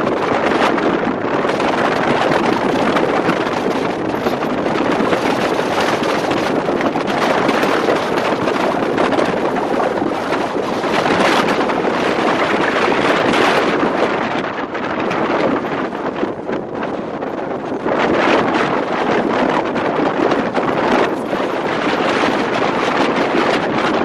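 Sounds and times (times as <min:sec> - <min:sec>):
wind rush on microphone: 0:00.0 - 0:24.0
car road noise: 0:18.7 - 0:24.0.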